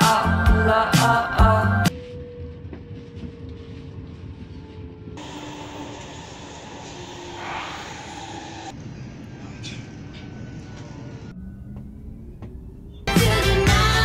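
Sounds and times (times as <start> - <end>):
faint falling whine: 1.9 - 14.0
train wheels rumbling on rail: 5.2 - 11.9.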